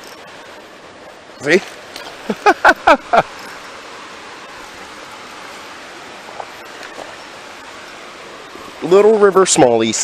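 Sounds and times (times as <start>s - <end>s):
river water rushing over rocks: 0.0s - 10.0s.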